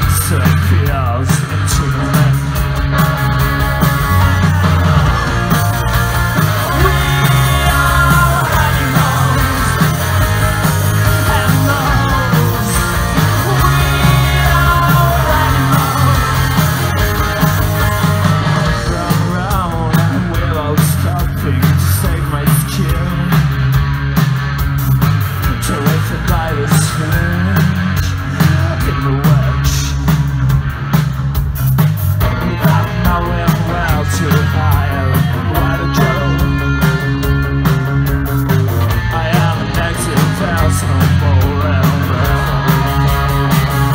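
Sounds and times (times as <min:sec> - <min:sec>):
bass guitar: 0:00.0 - 0:43.9
drums: 0:00.0 - 0:43.9
electric guitars: 0:00.0 - 0:43.9
live rock band: 0:00.0 - 0:43.9
person singing: 0:06.4 - 0:23.5, 0:32.3 - 0:37.1, 0:39.0 - 0:43.9.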